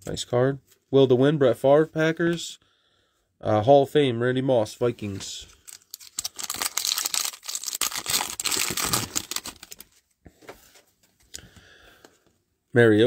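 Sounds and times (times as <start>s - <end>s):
card pack wrapper crinkling: 5.5s - 10.0s.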